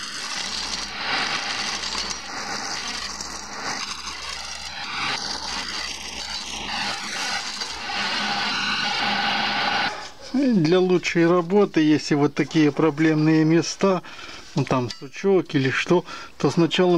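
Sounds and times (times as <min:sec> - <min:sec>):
chisel shaving wood on lathe: 0:00.0 - 0:10.0
lathe motor hum: 0:00.0 - 0:10.0.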